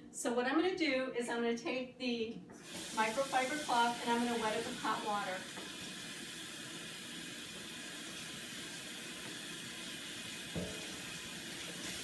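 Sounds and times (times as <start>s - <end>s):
tap water running: 2.6s - 12.0s.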